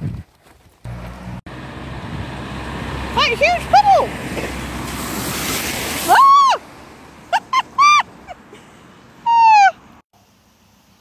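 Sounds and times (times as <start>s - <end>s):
vehicle spraying through floodwater: 1.5s - 8.5s.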